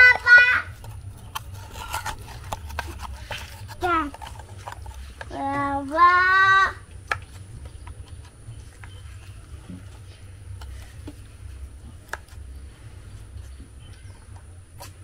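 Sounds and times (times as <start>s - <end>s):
metal spoon scraping coconut shell: 0.1s - 5.4s
child calling out: 5.9s - 6.8s.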